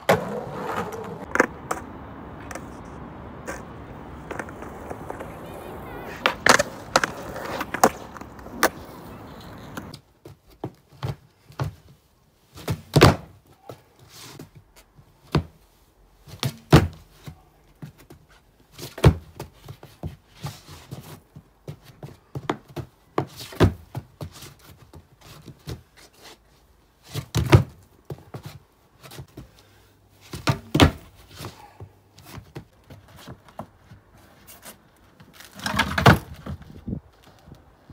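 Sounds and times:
skateboard clacking on hard ground: 0.0 - 10.0, 35.5 - 36.6.

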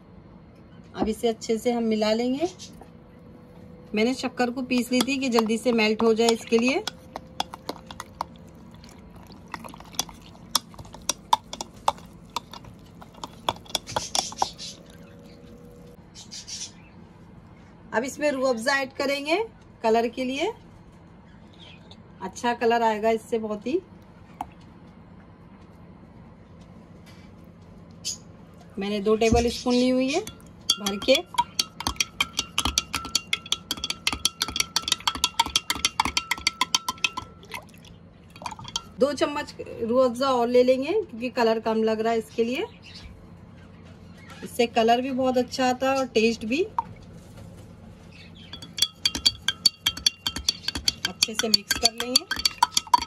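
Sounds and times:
metal spoon clinking against glass: 4.8 - 8.2, 30.2 - 37.6, 38.3 - 39.0, 48.5 - 53.0.

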